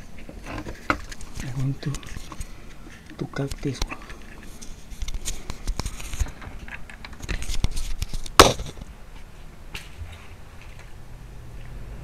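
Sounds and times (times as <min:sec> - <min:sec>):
sharp loud snap: 0:08.3 - 0:08.8.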